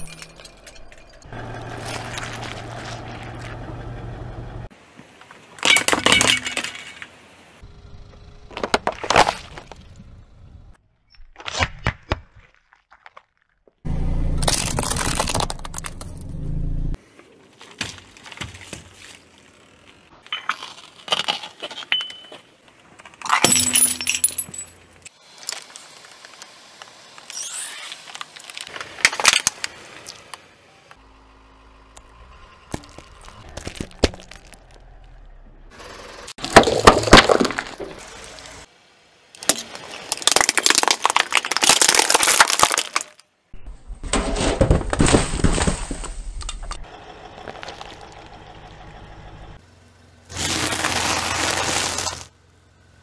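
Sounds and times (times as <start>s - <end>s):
car tyre crushing objects: 0.0s - 4.3s, 8.4s - 10.3s, 11.4s - 16.7s, 17.5s - 27.3s, 28.0s - 30.4s, 32.0s - 38.7s, 39.4s - 48.4s, 50.3s - 52.4s
car low rumble: 0.0s - 4.7s, 7.5s - 10.8s, 13.8s - 17.1s, 28.5s - 39.0s, 45.8s - 53.0s
hard plastic cracking: 39.4s - 43.2s.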